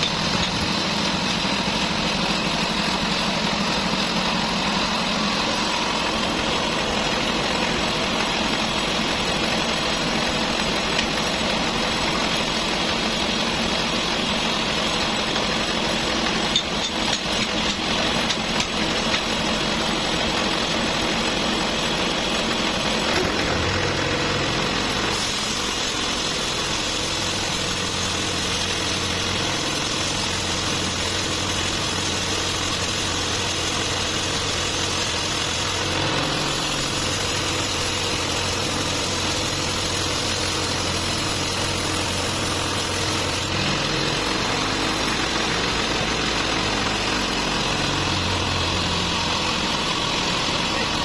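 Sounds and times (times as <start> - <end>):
saw blade rasping through wood: 25.1 - 43.6.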